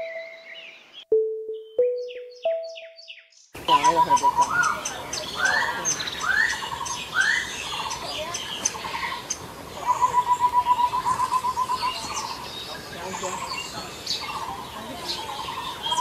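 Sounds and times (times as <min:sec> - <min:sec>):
fast repeated bird notes: 0:00.0 - 0:16.0
bird calling whistles: 0:05.4 - 0:07.6.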